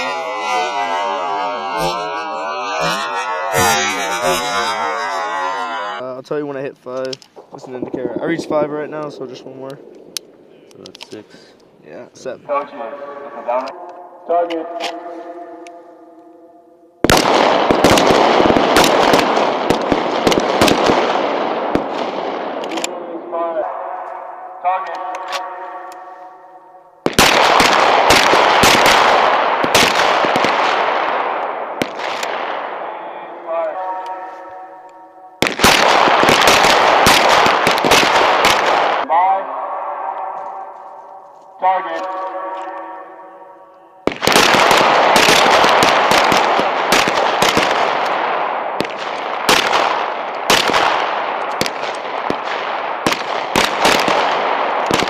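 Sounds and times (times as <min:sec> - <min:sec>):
pistol shots echoing: 0:27.1 - 0:32.9, 0:34.0 - 0:39.1, 0:44.0 - 0:55.0.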